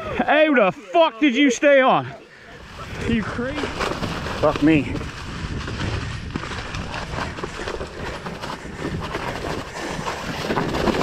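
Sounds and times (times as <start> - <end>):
wind and tyre rumble: 2.5 - 11.0
bike rattles and knocks: 2.7 - 11.0.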